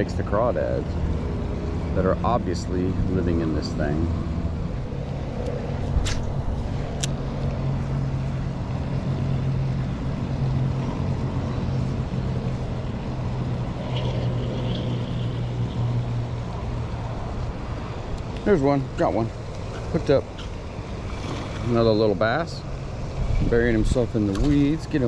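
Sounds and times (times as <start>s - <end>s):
low droning hum: 0.8s - 17.7s.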